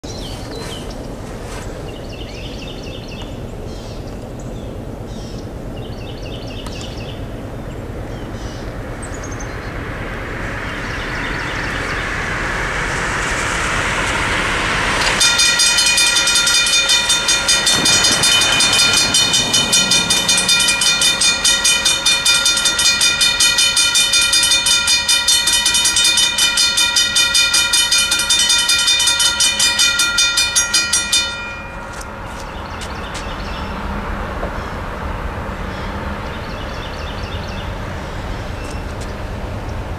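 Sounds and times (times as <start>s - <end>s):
vehicle road noise on wet road: 6.6s - 22.6s, 31.9s - 39.9s
crossing bell ringing: 9.8s - 34.0s.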